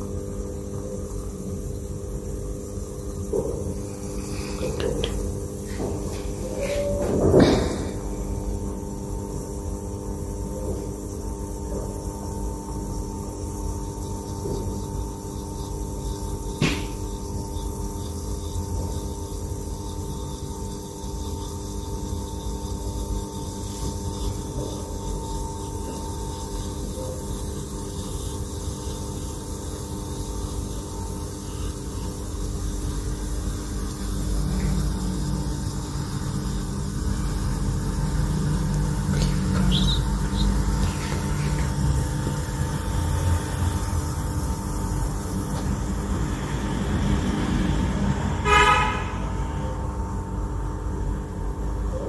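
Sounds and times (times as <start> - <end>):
furnace electrical and fan hum: 0.0 - 52.0
sharp knock: 7.0 - 8.0, 16.6 - 17.0.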